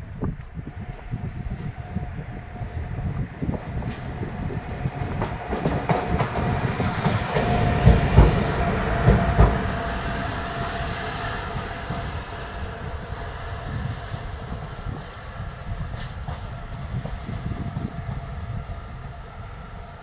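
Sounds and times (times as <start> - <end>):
locomotive rumble: 0.0 - 20.0
wheels clacking over rail joints: 2.1 - 18.0.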